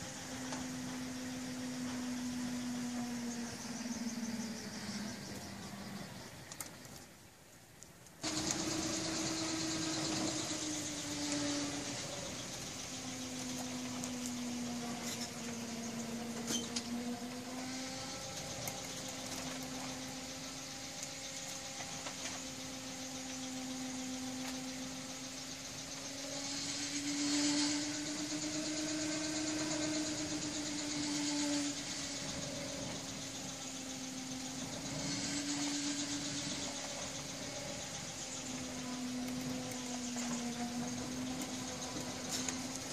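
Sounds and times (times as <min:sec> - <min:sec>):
wind turbine whine: 0:00.0 - 0:42.9
rushing noise: 0:25.9 - 0:38.2.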